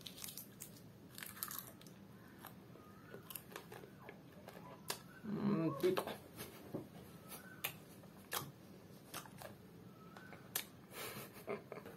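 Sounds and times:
nut being chewed: 0:00.0 - 0:05.1.

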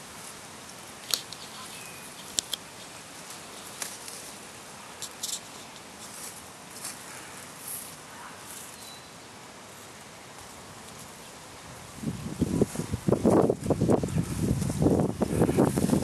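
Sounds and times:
outdoor hiss: 0:00.0 - 0:16.0
dry plant stems crackling: 0:00.7 - 0:08.9.

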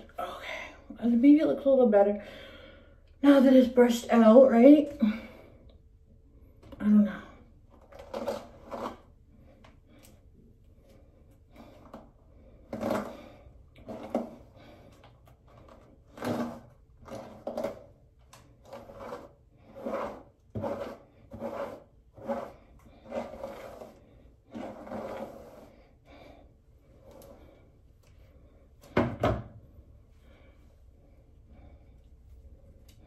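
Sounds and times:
hairbrush strokes through hair: 0:18.7 - 0:25.8.

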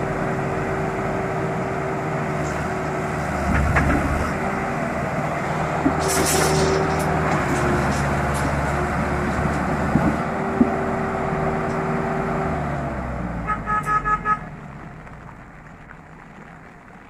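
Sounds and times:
tractor diesel engine under load: 0:00.0 - 0:17.0
metal clanks: 0:03.4 - 0:04.4, 0:05.3 - 0:10.8
vehicle horn short toots: 0:13.4 - 0:14.5.

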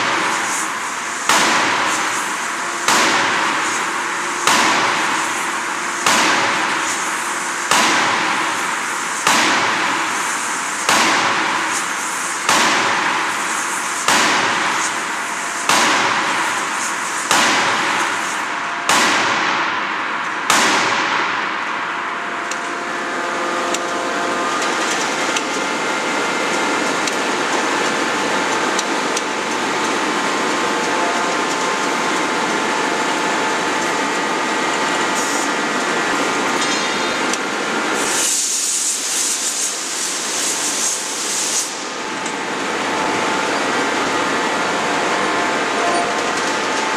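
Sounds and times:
machinery noise with faint whine: 0:00.0 - 0:46.9
forging hammer heavy blows: 0:02.8 - 0:03.8, 0:04.4 - 0:05.4, 0:06.0 - 0:06.9.

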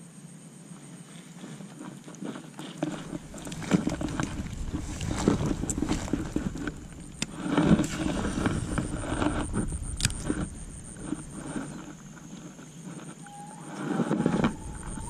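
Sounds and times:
low rumble: 0:03.0 - 0:13.0, 0:14.1 - 0:15.0.

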